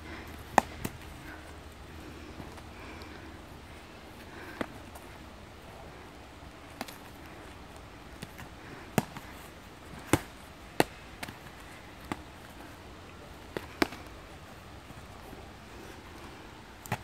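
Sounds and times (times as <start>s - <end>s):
padded swords smacking: 8.2s - 9.4s, 10.0s - 12.3s, 16.8s - 17.0s.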